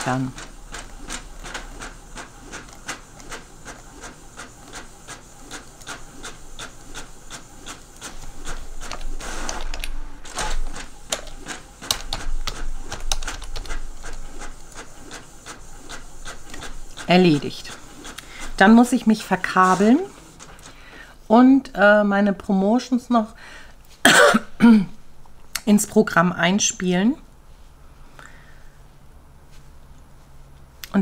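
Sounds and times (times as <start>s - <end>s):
printer rush of noise: 0.0s - 20.9s
printer mechanical clicks: 0.3s - 18.6s.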